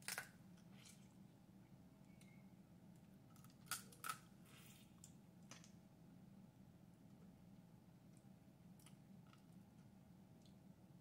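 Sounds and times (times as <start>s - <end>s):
crab shell cracking: 0.0s - 0.4s, 3.3s - 4.3s.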